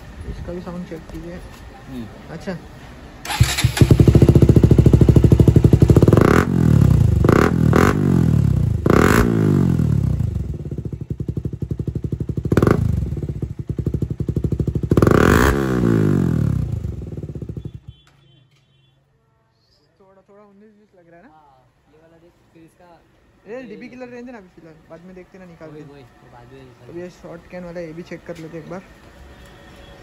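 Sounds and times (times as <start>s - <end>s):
motorcycle engine revving: 3.2s - 17.9s.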